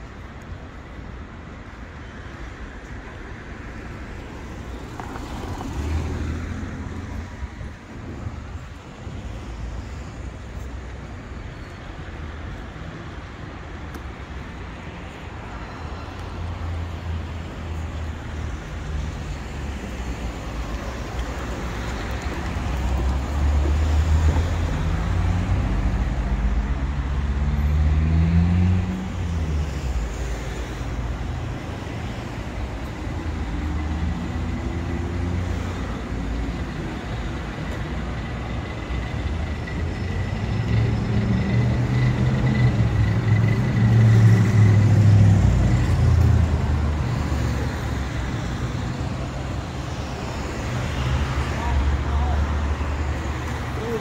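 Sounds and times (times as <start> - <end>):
cars driving past: 14.5 - 54.0.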